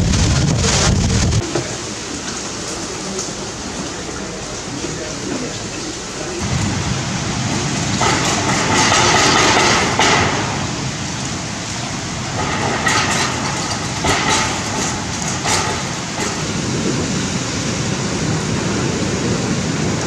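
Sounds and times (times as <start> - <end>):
strong wind and heavy rain: 0.0 - 20.0
faint knocks and rattles: 7.9 - 11.3, 12.3 - 16.6.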